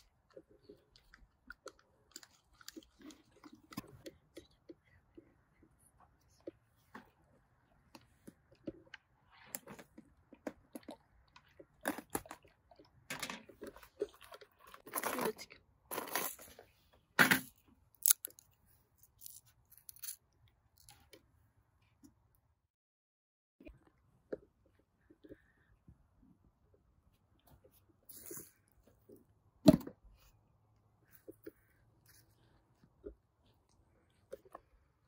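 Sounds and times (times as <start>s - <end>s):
crunching and chewing: 0.0s - 16.7s, 17.6s - 21.3s, 31.0s - 35.0s.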